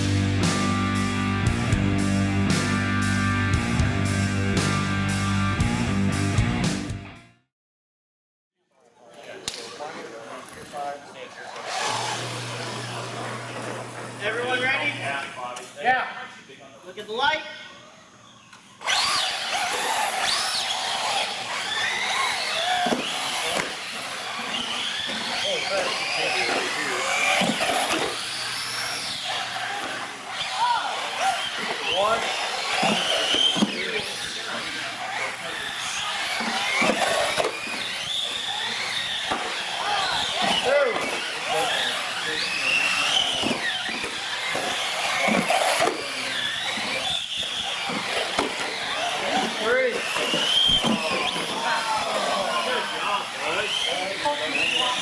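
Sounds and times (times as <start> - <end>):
rc truck electric motors whining: 10.1 - 15.7, 17.7 - 55.0.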